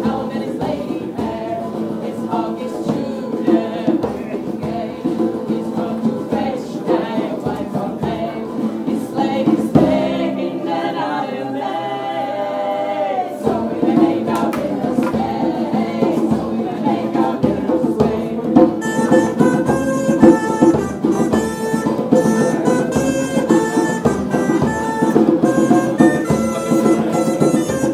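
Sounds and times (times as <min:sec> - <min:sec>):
folk band with guitar and drums: 0:00.0 - 0:27.9
voices singing together: 0:00.0 - 0:27.9
live band music: 0:18.0 - 0:27.9.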